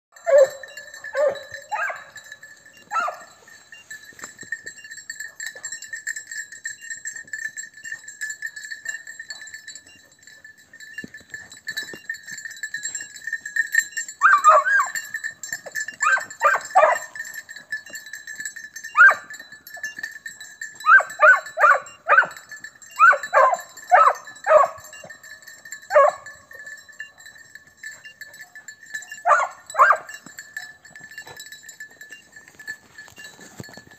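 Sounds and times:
hounds baying: 0.1 - 3.9, 5.1 - 6.0, 14.0 - 32.2.

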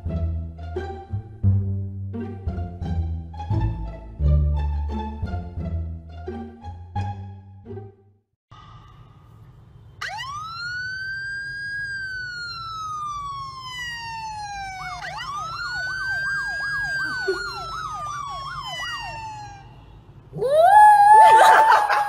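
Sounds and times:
police siren wailing: 10.0 - 22.0
siren fast yelp: 10.0 - 22.0.

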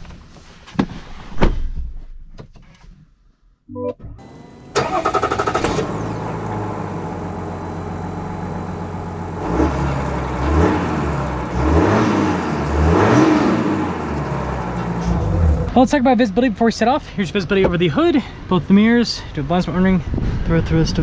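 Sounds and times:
diesel truck engine idling and revving: 4.2 - 17.6.

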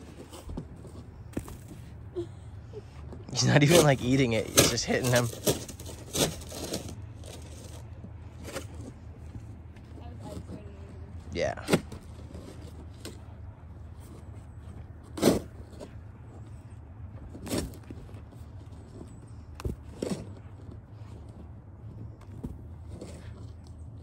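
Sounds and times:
steady low hum: 0.0 - 24.0
snow shovel scraping snow: 3.4 - 7.8.

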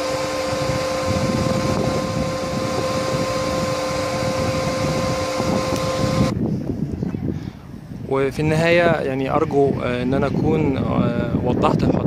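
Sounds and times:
electrical hum and whine: 0.0 - 6.4
steady rushing noise: 0.0 - 6.9.

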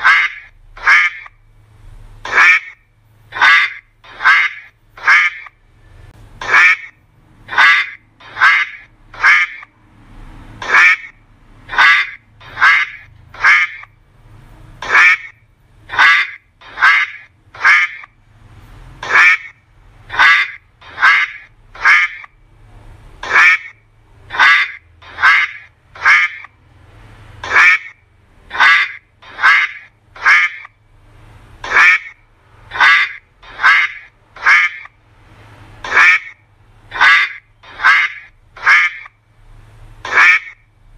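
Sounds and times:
duck quacking: 0.0 - 1.4, 2.2 - 5.6, 6.4 - 9.7, 10.6 - 13.9, 14.8 - 18.2, 19.0 - 22.3, 23.2 - 26.6, 27.4 - 30.8, 31.6 - 35.0, 35.8 - 39.2, 40.0 - 40.7.

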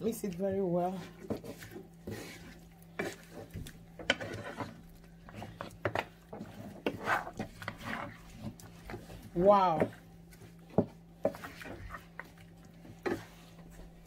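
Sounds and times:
spoon stirring thick sauce: 0.1 - 14.0
spoon knocking and scraping pot: 1.1 - 10.0.

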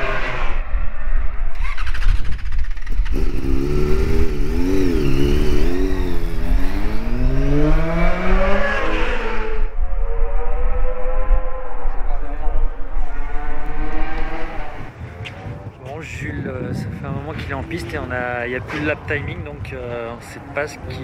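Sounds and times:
motorcycle engine revving: 0.0 - 15.6.

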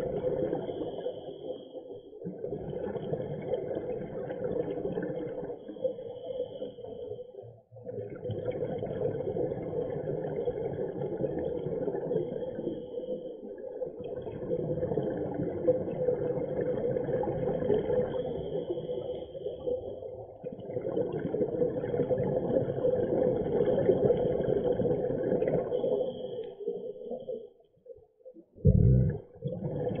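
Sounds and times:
underwater regulator breathing bubbles: 28.6 - 30.0.

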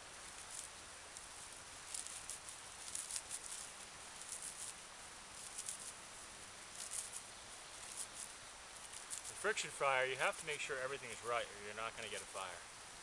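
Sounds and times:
bark being rubbed and torn: 0.0 - 9.4, 11.9 - 12.4.

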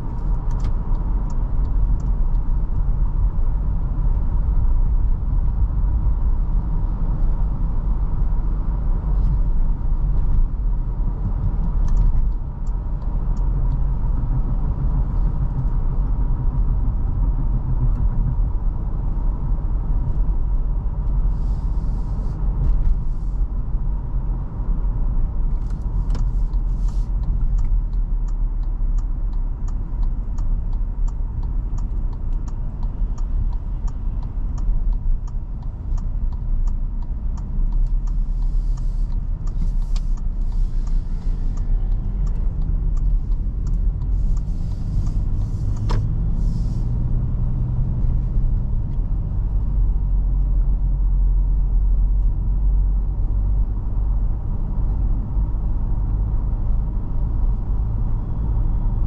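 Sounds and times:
car engine and tyres rumbling: 0.0 - 59.0
regular ticking: 25.7 - 46.2.

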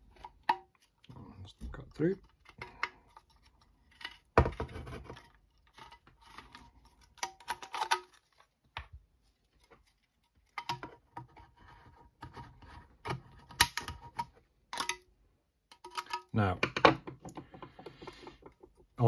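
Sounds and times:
tin can clicks and scrapes: 2.2 - 8.5, 9.6 - 15.0, 15.7 - 16.3.

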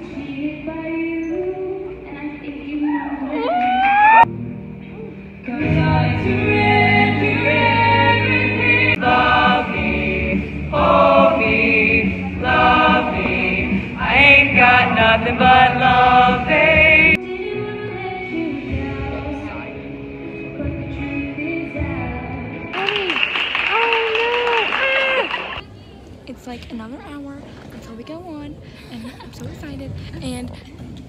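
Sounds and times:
choir singing together: 5.5 - 19.7.

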